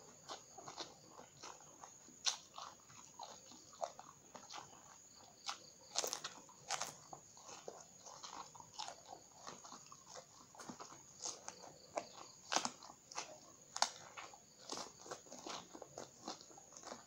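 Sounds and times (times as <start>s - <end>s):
biting and chewing eggplant: 0.0s - 17.0s.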